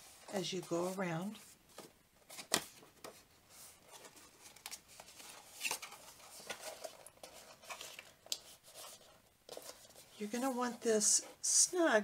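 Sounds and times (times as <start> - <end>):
paper rustling and crackling: 1.3 - 10.9.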